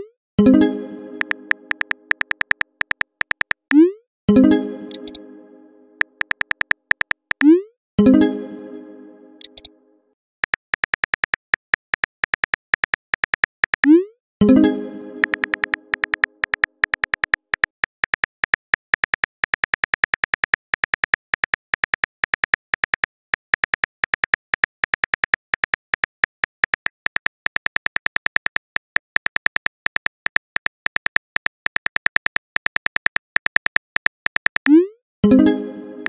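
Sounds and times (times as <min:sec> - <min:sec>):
keyboard click ticks: 0:01.2 - 0:03.8, 0:04.9 - 0:05.2, 0:06.0 - 0:07.6, 0:09.4 - 0:09.7, 0:10.4 - 0:14.0, 0:15.2 - 0:34.8.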